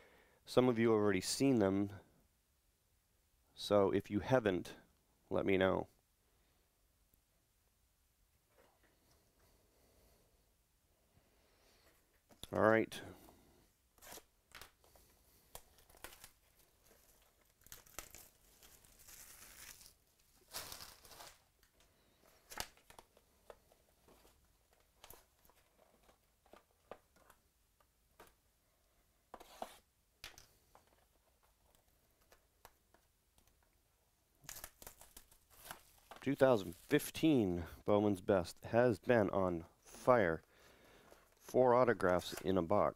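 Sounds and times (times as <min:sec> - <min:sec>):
packaging rustling and tearing: 0:14.0 - 0:27.4, 0:34.4 - 0:37.0.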